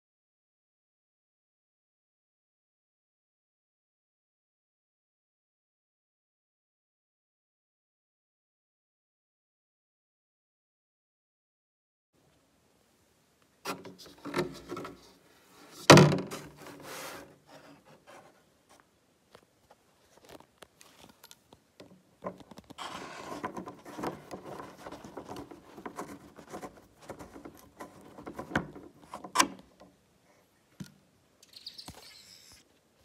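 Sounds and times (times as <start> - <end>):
rustling and scraping: 13.6 - 29.9
loud thunk: 15.9 - 16.5.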